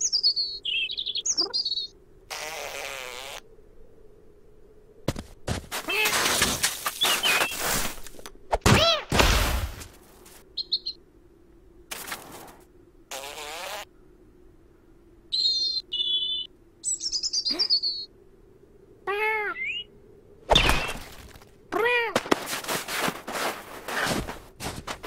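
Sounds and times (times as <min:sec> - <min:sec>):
small bird chirping: 0:00.0 - 0:02.0, 0:10.6 - 0:11.0, 0:15.3 - 0:18.1, 0:19.2 - 0:19.9
cartoon cat crying: 0:19.1 - 0:19.7, 0:21.7 - 0:22.2.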